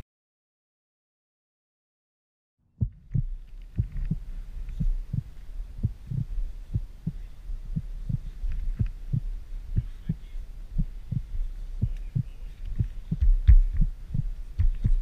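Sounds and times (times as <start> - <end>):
low steady hum: 2.6 - 15.0
heartbeat double thump: 2.8 - 10.2, 10.8 - 15.0.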